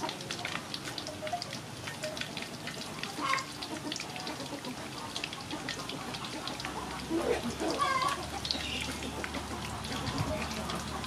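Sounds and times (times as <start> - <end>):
oil sizzling and popping: 0.0 - 11.0.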